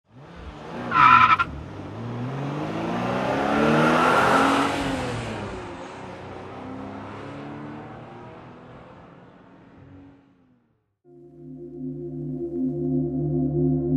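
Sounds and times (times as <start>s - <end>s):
car engine accelerating past: 0.1s - 10.4s
tyre squeal: 0.9s - 1.5s.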